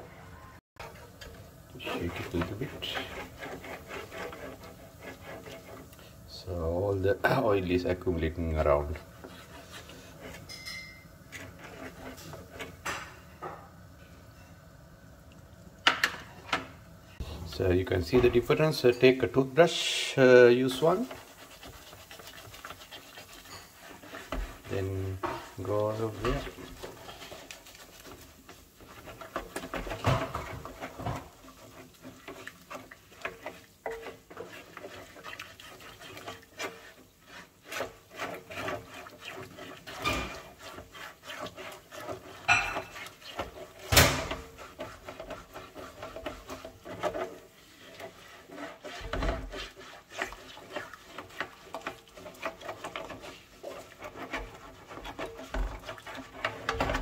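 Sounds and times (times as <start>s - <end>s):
toothbrush scrubbing mesh filter: 19.8s - 57.0s.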